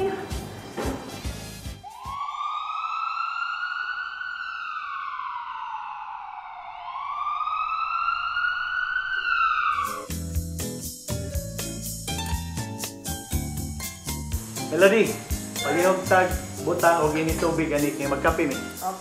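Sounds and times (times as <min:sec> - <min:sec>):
music: 0:00.0 - 0:02.2, 0:09.8 - 0:19.0
siren wailing: 0:01.8 - 0:10.2.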